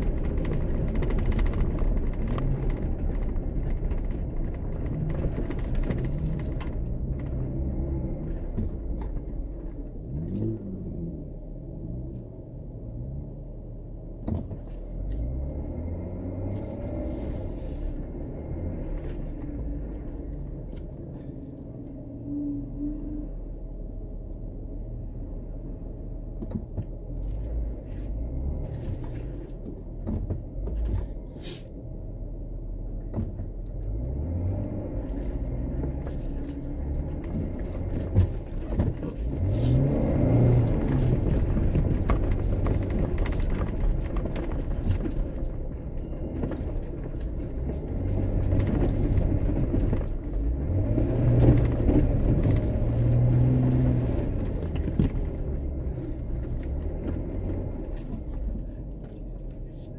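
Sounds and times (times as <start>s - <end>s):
small rattles and jingles: 0.0s - 10.5s, 34.4s - 59.9s
car engine revving: 0.0s - 13.6s, 14.2s - 21.6s, 33.1s - 59.9s.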